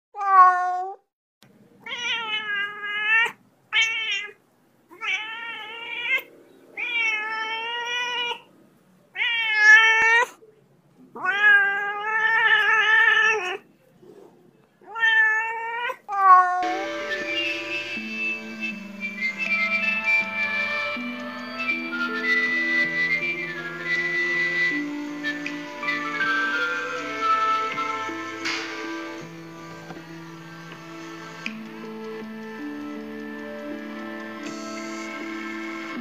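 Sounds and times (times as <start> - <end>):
cat meowing: 0.2 - 1.0, 1.8 - 8.5, 9.1 - 10.4, 11.1 - 13.7, 14.8 - 16.7.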